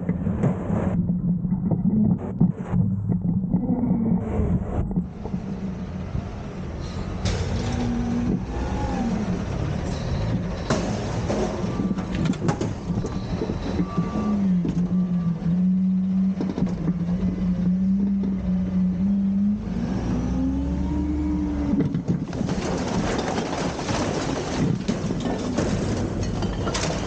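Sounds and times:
garbage truck engine revving: 0.2s - 27.0s
metal clanks: 22.0s - 27.0s.

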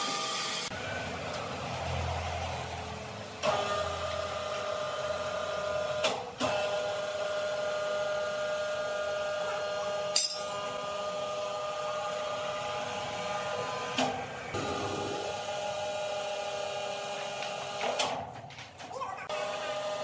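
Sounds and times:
sharp metal clank: 10.2s - 10.7s.

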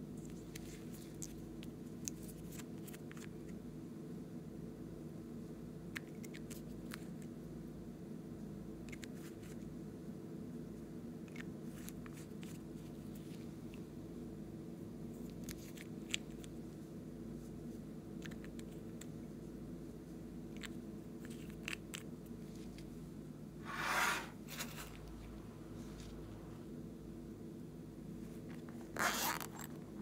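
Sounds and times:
scraping rustle: 23.6s - 26.2s.

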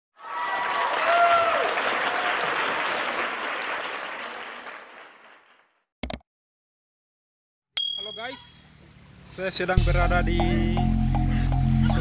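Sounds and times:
crowd clapping and cheering: 0.2s - 5.8s.

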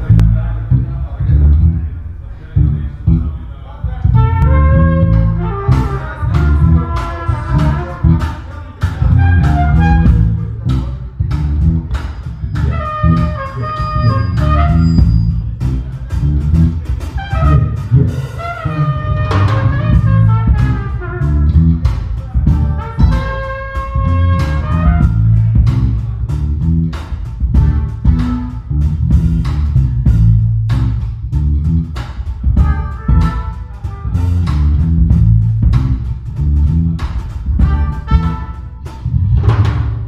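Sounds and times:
electric bass: 0.0s - 40.0s
keyboard notes: 0.0s - 40.0s
drum kit beat: 4.1s - 40.0s
trumpet: 4.2s - 10.6s, 12.5s - 15.5s, 17.1s - 25.5s, 27.6s - 28.8s, 32.6s - 35.2s, 37.6s - 39.8s.

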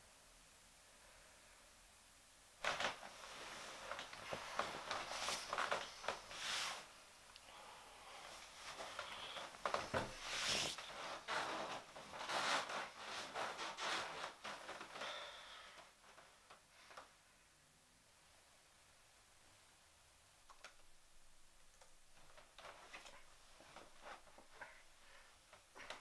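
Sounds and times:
bedcovers rustling: 2.6s - 7.1s, 8.2s - 17.1s, 22.0s - 26.0s.

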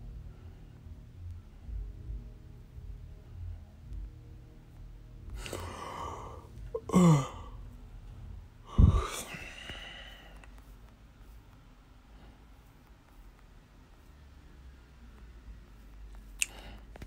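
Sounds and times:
person breathing: 5.3s - 7.7s, 8.6s - 10.7s, 12.0s - 12.8s, 16.4s - 17.0s
person sighing: 5.4s - 7.6s, 8.7s - 10.3s.

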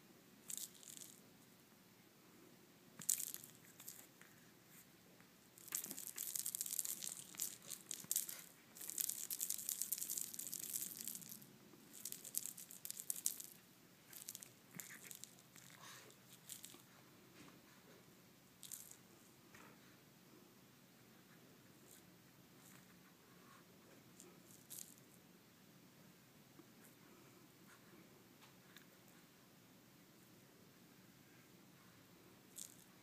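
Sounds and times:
cat toy rattling and rustling: 0.4s - 1.2s, 3.0s - 4.4s, 5.6s - 16.9s, 18.6s - 19.0s, 24.2s - 25.1s, 32.5s - 33.0s.

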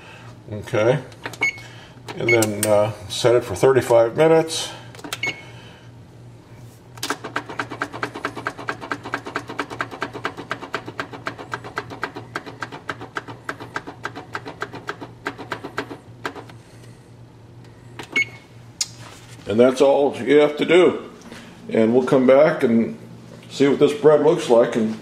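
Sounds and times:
oven control panel beeps: 1.4s - 2.7s, 5.1s - 5.5s, 18.0s - 18.5s.

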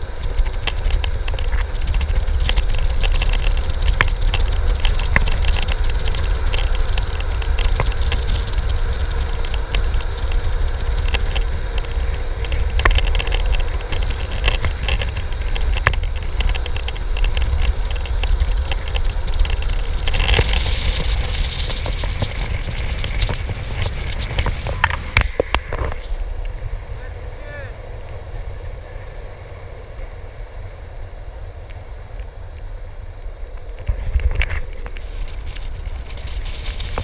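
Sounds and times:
clicks and crackles from grit: 0.0s - 26.6s, 30.0s - 37.0s
skateboard wheels rolling on asphalt: 0.0s - 37.0s
wind buffeting microphone: 0.0s - 37.0s.

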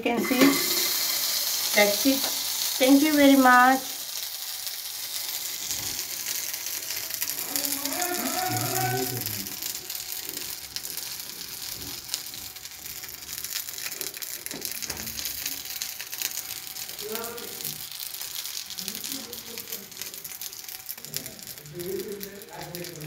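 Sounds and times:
pot sizzling with hiss: 0.0s - 23.0s
small clicks and crackles: 3.8s - 23.0s.

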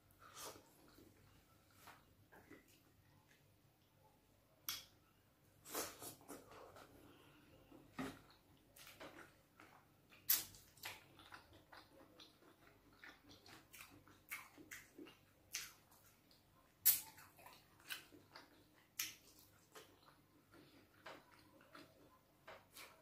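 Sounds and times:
wet chewing mouth sounds: 8.2s - 23.0s.

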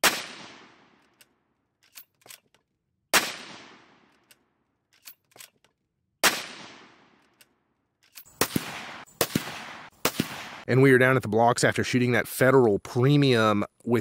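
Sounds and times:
rifle shots echoing: 0.0s - 1.0s, 3.1s - 4.2s, 6.2s - 7.2s, 8.3s - 10.7s
rifle bolt clicks: 1.0s - 2.7s, 4.0s - 5.8s, 7.1s - 8.7s.

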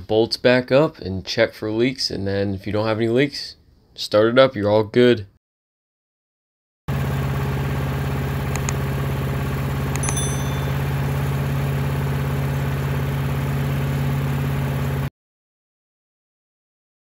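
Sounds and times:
small engine running steadily: 6.9s - 15.1s.

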